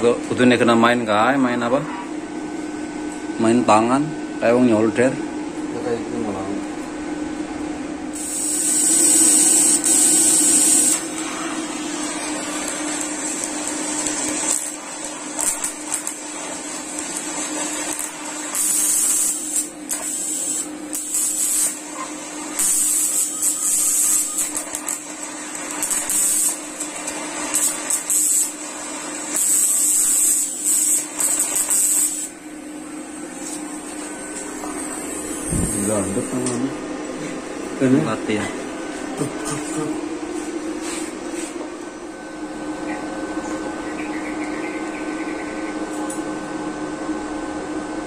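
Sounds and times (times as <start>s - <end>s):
steady hum: 0.0s - 48.0s
welding arc hissing and buzzing: 8.1s - 32.7s, 33.3s - 37.3s.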